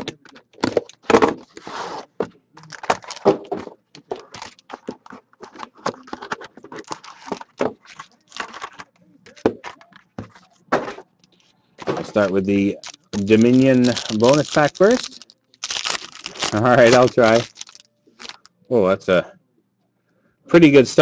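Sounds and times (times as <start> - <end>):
cardboard and foil rustling: 2.6 - 10.9, 11.8 - 18.5.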